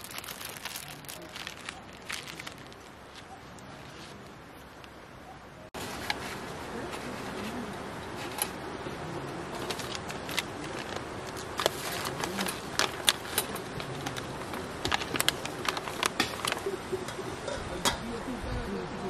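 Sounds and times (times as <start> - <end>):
coffee packet crinkling: 0.0 - 3.3, 9.6 - 16.7
paper filter rustling: 0.0 - 4.4, 5.8 - 8.7, 9.3 - 16.9.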